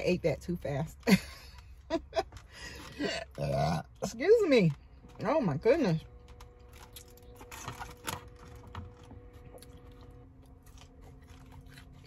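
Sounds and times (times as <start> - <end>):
sandwich being chewed: 6.3 - 12.0.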